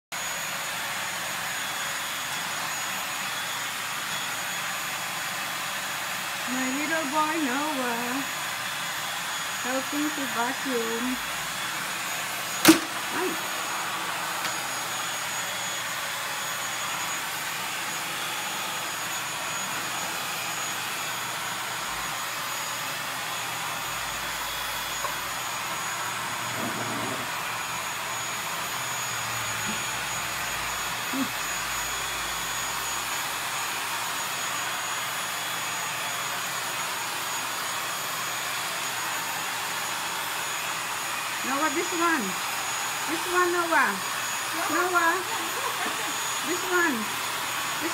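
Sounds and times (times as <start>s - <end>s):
vacuum cleaner running: 0.1s - 47.9s.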